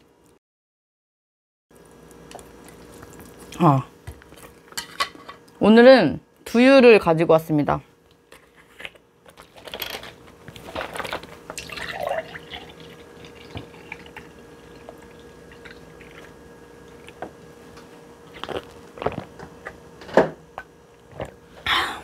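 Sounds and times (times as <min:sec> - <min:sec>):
liquid dripping and sloshing: 0:10.9 - 0:17.2.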